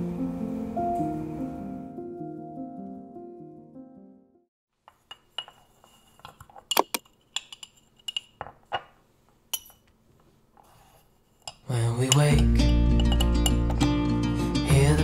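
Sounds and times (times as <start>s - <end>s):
background music: 0.0s - 4.4s, 12.1s - 15.0s
glass clinks and taps: 4.9s - 9.9s, 11.5s - 13.9s.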